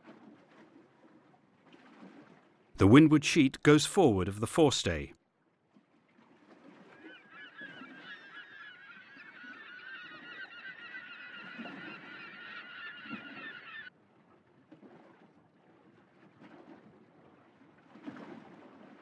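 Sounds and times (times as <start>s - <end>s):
flock of birds chattering: 7.1s - 13.9s.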